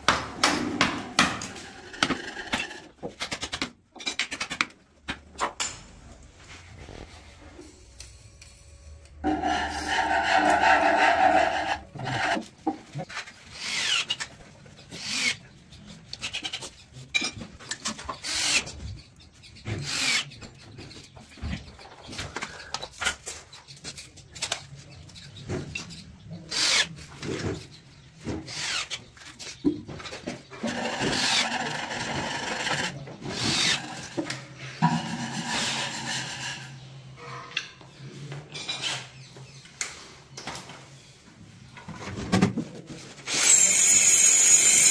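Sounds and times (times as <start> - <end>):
wood rubbing and scraping: 9.2 - 14.3.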